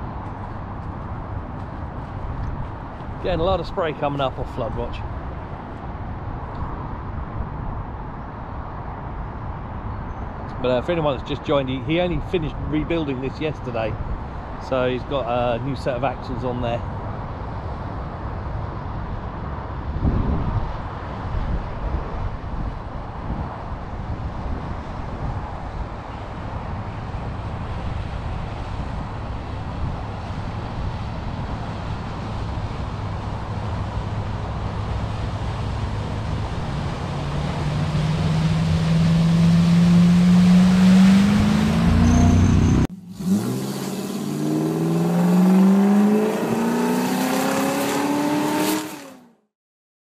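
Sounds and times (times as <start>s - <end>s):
vehicle engine: 26.0s - 49.4s
engine revving: 35.3s - 49.4s.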